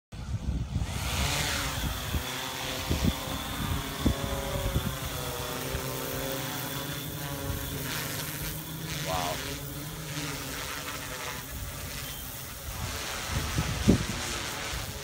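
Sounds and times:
wind buffeting microphone: 0:00.2 - 0:08.6, 0:11.4 - 0:15.0
drone rotors whining: 0:00.2 - 0:15.0.

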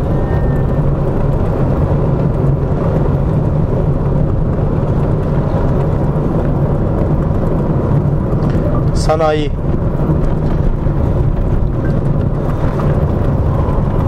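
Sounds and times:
car cabin engine drone: 0:00.0 - 0:14.0
tyre rumble: 0:00.0 - 0:14.0.

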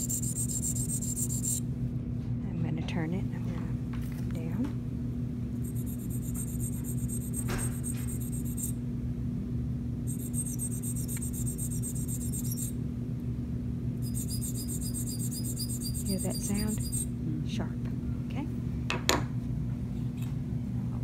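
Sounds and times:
sharpening stone rasping on metal: 0:00.0 - 0:01.6, 0:10.1 - 0:12.7, 0:14.0 - 0:17.1.

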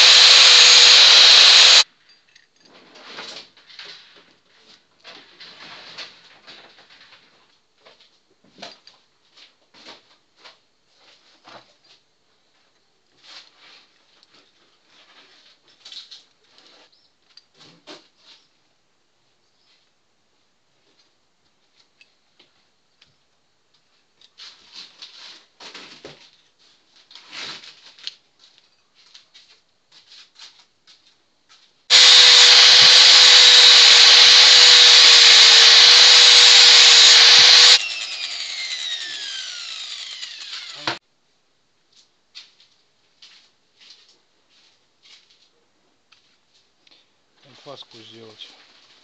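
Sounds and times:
angle grinder grinding steel: 0:00.0 - 0:01.8, 0:31.9 - 0:41.0.

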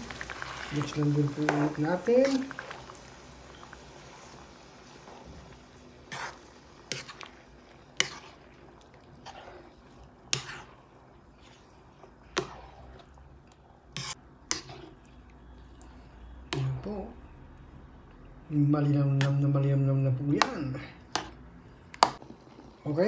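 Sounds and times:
wooden spatula scraping a pan: 0:00.0 - 0:15.2.

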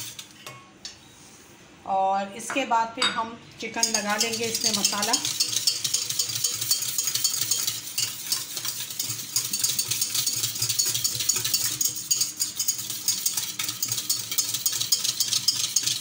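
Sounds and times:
whisk scraping a metal bowl: 0:00.0 - 0:00.3, 0:03.7 - 0:16.0.

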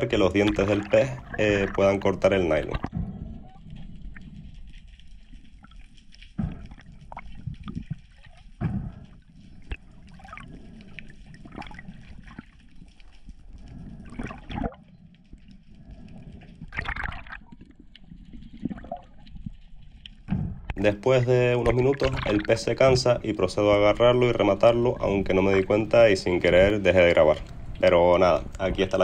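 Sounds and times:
underwater clicks knocks and gurgles: 0:00.0 - 0:20.8, 0:21.6 - 0:23.0
underwater low rumble: 0:00.0 - 0:29.0.

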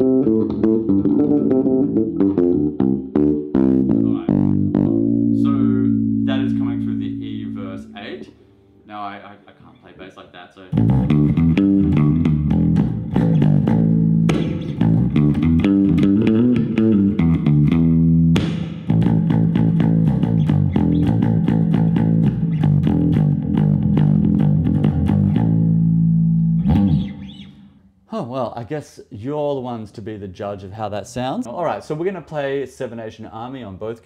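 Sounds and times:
electric bass plucked notes: 0:00.0 - 0:08.8, 0:10.7 - 0:27.7.

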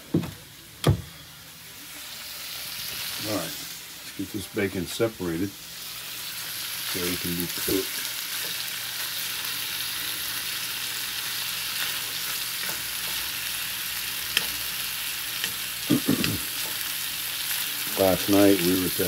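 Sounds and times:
bacon sizzling in a pan: 0:01.4 - 0:19.0
metal fork clicking on pan: 0:14.3 - 0:14.6.

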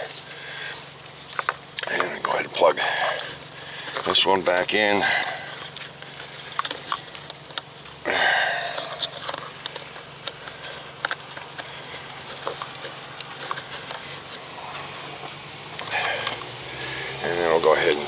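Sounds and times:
steady low hum: 0:00.0 - 0:18.0
plastic parts clicking and knocking: 0:01.3 - 0:02.4, 0:08.6 - 0:14.0.

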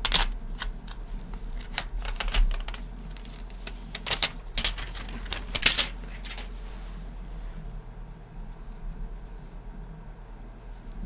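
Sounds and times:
plastic wrap crinkling: 0:00.0 - 0:07.0.

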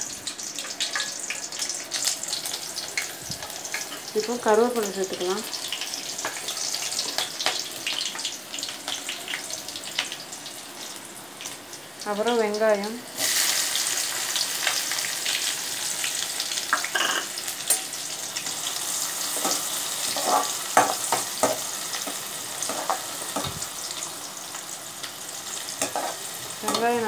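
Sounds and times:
onions sizzling in hot oil: 0:00.0 - 0:27.0
spoon clicking and scraping pan: 0:25.8 - 0:26.9.

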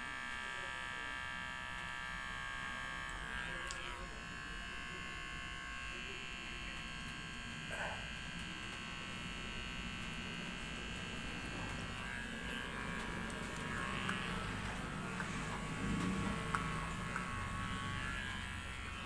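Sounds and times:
electric hair clipper buzzing: 0:00.0 - 0:19.0.

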